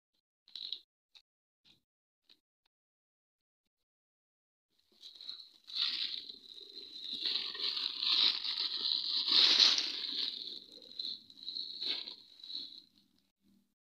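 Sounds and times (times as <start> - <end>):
plastic packaging crinkling: 5.0 - 13.1
sharp crackle: 5.0 - 13.3.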